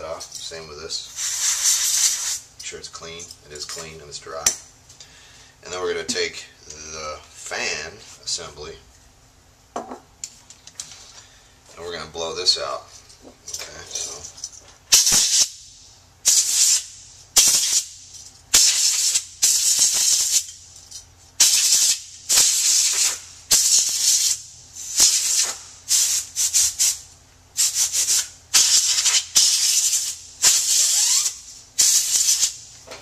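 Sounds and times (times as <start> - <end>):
compressed air spray hissing: 1.1 - 2.4, 14.9 - 20.5, 21.4 - 27.0, 27.6 - 32.7.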